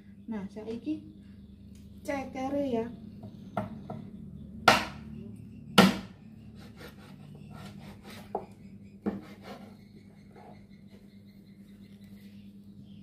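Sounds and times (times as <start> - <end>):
knife chopping on wooden board: 4.7 - 5.0, 5.8 - 9.6.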